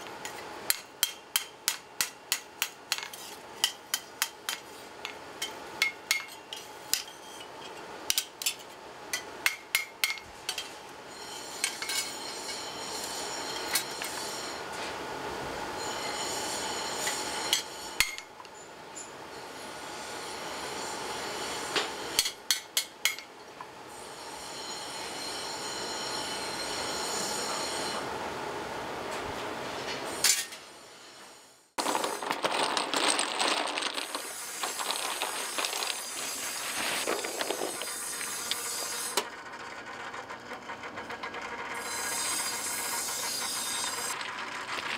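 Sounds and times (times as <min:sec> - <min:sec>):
steady mechanical noise: 0:00.0 - 0:44.9
wooden tool handles clattering: 0:31.8 - 0:38.6.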